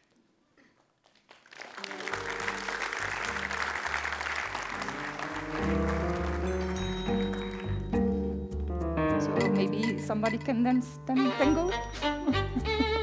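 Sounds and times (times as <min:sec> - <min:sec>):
audience applauding: 0:00.8 - 0:08.1.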